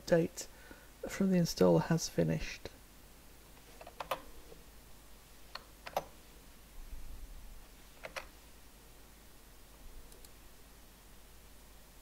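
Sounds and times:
computer clicks: 0:08.0 - 0:08.3, 0:10.1 - 0:10.4.

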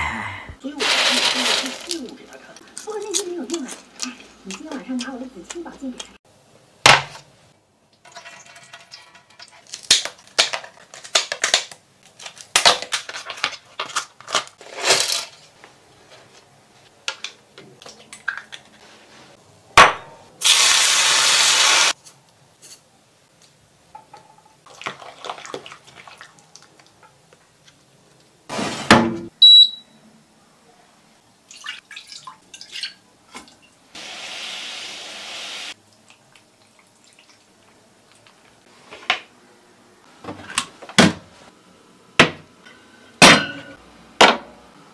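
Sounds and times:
hot oil hissing: 0:20.4 - 0:22.0, 0:34.0 - 0:35.8.

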